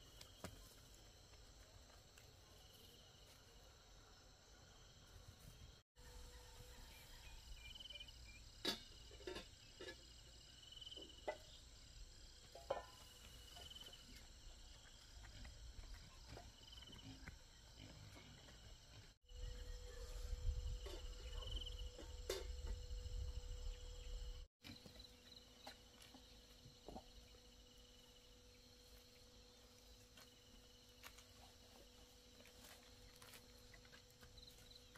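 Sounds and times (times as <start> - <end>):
insects chirping: 0.0 - 34.9.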